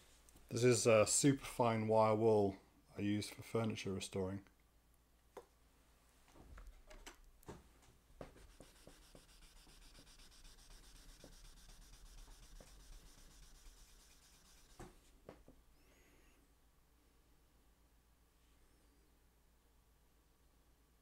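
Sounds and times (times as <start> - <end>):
wire wool scrubbing metal: 8.3 - 14.9.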